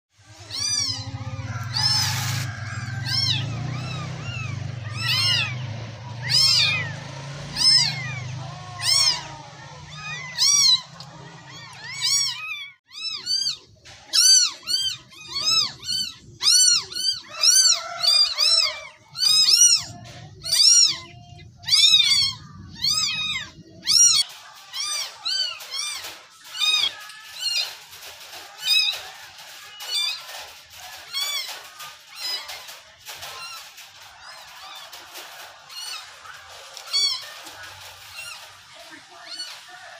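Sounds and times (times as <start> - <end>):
kitten meowing: 0.3 - 5.6, 6.2 - 27.7.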